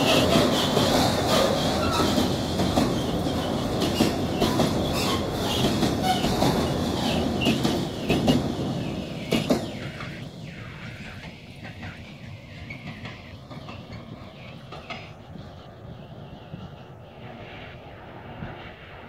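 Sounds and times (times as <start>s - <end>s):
wheels clattering over rail joints: 0.0s - 9.9s
freight train rumbling past: 0.0s - 19.0s.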